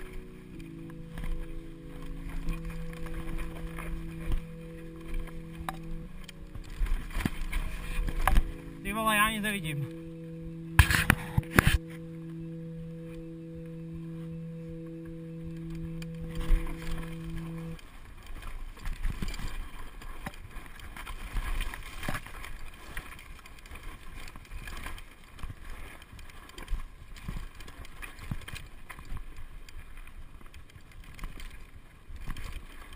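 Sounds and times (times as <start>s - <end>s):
held musical tone: 0.0s - 17.8s.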